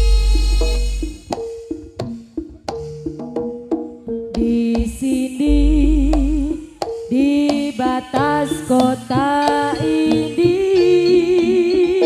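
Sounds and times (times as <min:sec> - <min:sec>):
sharp drum strokes: 0:00.0 - 0:03.0
metallophone notes: 0:04.0 - 0:12.0
wavering held tone: 0:04.8 - 0:12.0.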